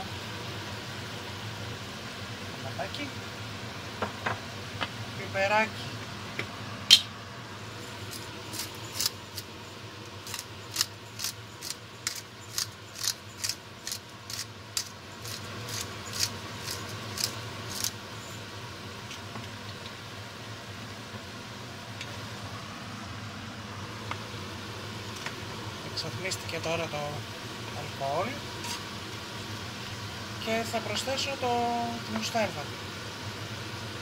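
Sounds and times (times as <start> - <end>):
steady low hum: 0.0 - 34.0
pepper mill grinding clicks: 10.2 - 17.9.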